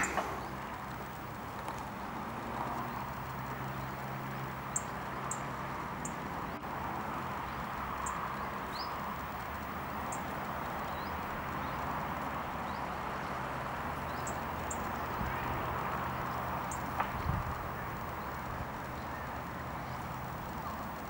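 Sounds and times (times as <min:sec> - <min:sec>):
bees buzzing: 0:00.0 - 0:06.5
outdoor hiss: 0:00.0 - 0:21.0.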